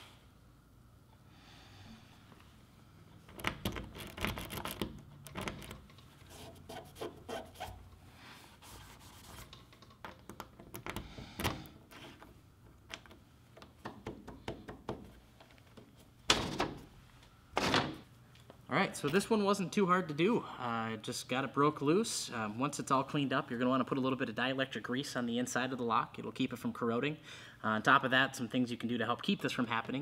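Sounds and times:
key scraping and clicking in lock: 3.3s - 6.0s, 9.6s - 13.2s
lock handle popping out: 3.3s - 6.0s.

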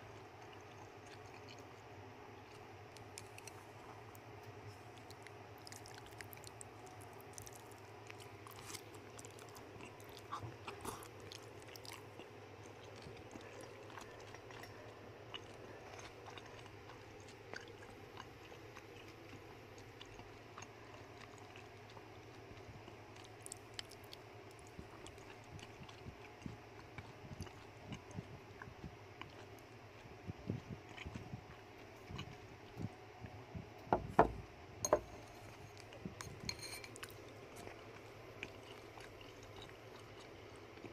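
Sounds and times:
rat gnawing food: 0.0s - 40.9s
steady low hum: 0.0s - 40.9s.

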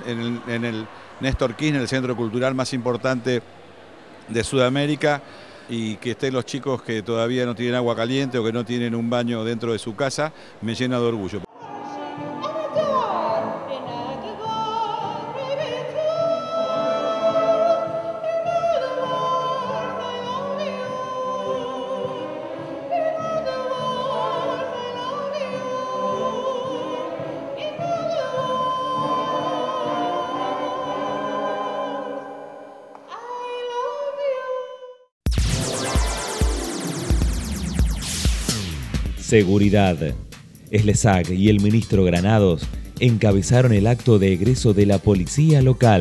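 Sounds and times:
woman singing operatic: 11.5s - 35.1s
bright electronic jingle: 35.3s - 38.8s.

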